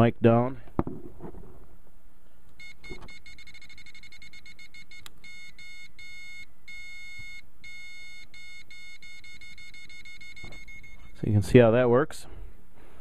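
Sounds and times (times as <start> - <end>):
morse code beeps: 2.6 - 11.3.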